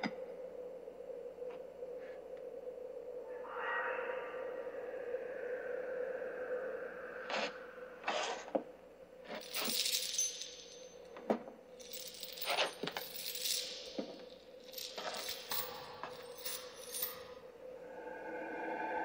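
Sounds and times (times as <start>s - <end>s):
faint steady hum: 0.0s - 19.0s
metallic jingling and clinking: 9.3s - 17.5s.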